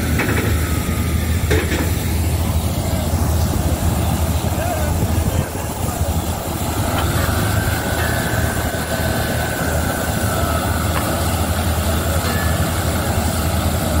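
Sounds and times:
drilling rig running: 0:00.0 - 0:14.0
water and slurry blowing out: 0:00.0 - 0:14.0
faint whistling tone: 0:07.5 - 0:13.1.

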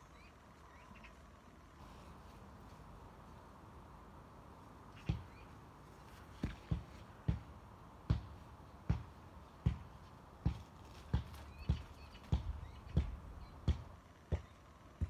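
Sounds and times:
footsteps on grass: 0:01.8 - 0:03.6, 0:04.9 - 0:13.9.

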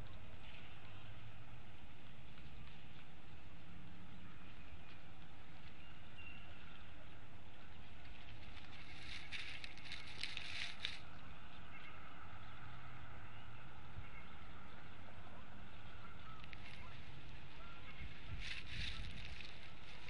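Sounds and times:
rustling dry twigs: 0:01.9 - 0:11.7, 0:15.8 - 0:20.0.

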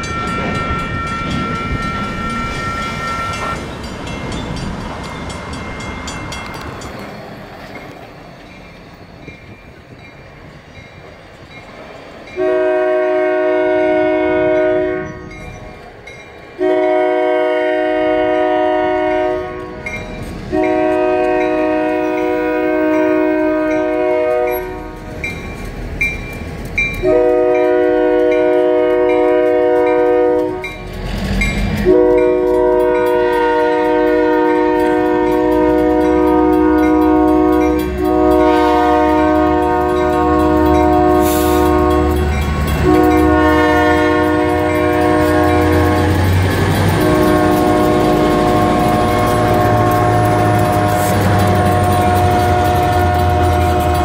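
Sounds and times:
locomotive horn blasts: 0:00.0 - 0:03.6, 0:12.4 - 0:15.4, 0:16.6 - 0:19.9, 0:20.5 - 0:25.1, 0:27.0 - 0:30.9, 0:31.8 - 0:54.0
crossing bell dinging: 0:00.0 - 0:54.0
train rumble: 0:00.0 - 0:54.0.

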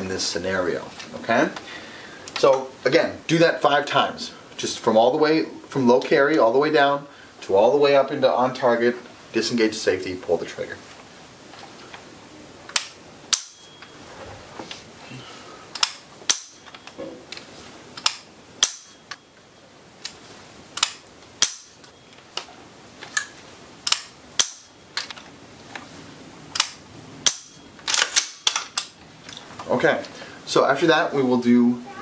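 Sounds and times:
rifle mechanism clicks: 0:15.7 - 0:16.9, 0:23.1 - 0:25.2, 0:26.5 - 0:29.0.

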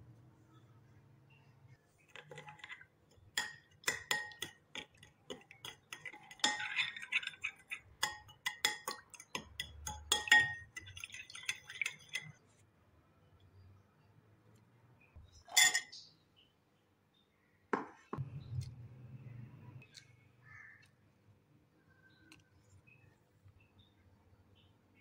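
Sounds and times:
metal spoon clinking against glass: 0:02.2 - 0:12.4, 0:15.4 - 0:16.0.

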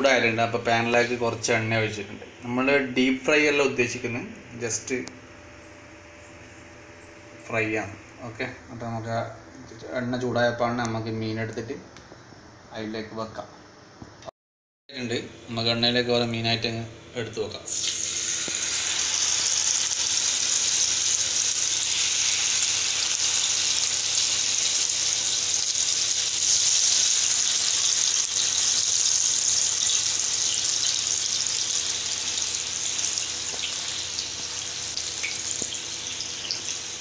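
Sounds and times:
fish sizzling in hot oil: 0:17.7 - 0:37.0.

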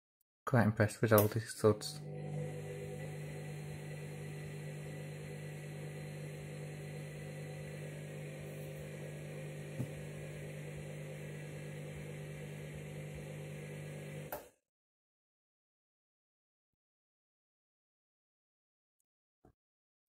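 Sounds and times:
washing machine motor hum: 0:01.7 - 0:14.4.

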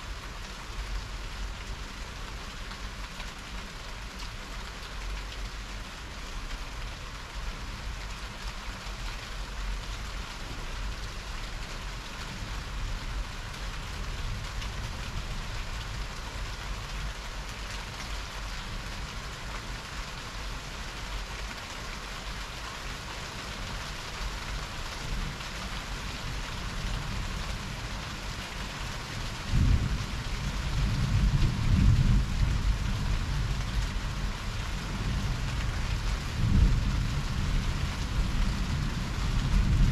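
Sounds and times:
heavy rain falling: 0:00.0 - 0:39.9
thunder rumbling: 0:29.4 - 0:34.2, 0:34.8 - 0:39.9.

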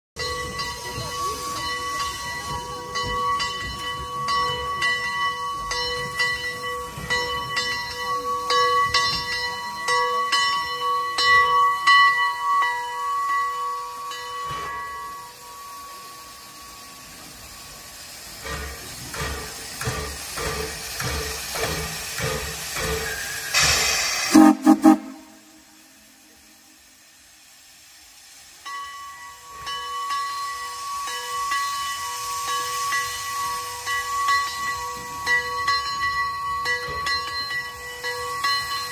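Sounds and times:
steam hissing: 0:00.2 - 0:38.9
steam locomotive chuffing: 0:00.2 - 0:38.9
loud blast of steam: 0:13.9 - 0:34.1.

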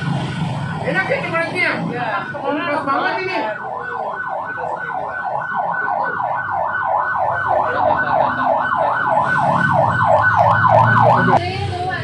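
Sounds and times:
electronic siren yelping: 0:02.0 - 0:11.4.

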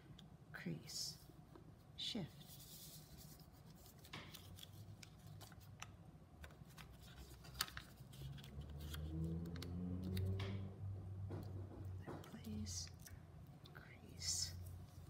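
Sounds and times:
paper rustling and creasing: 0:02.4 - 0:10.3
low droning hum: 0:07.7 - 0:15.0.

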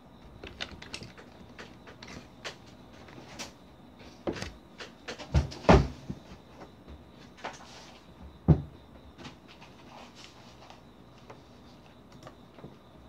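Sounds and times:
keyboard keys clicking: 0:00.4 - 0:02.7.

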